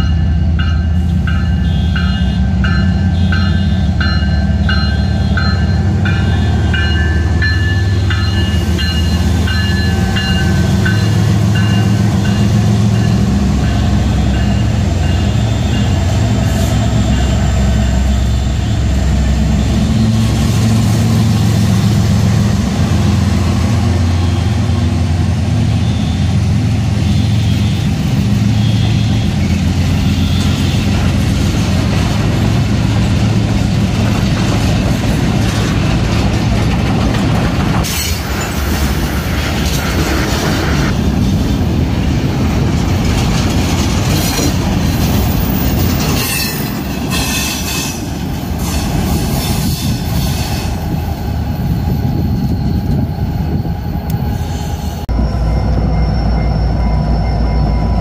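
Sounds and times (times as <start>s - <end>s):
diesel locomotives rumbling: 0.0s - 58.0s
freight cars rolling on track: 1.0s - 58.0s.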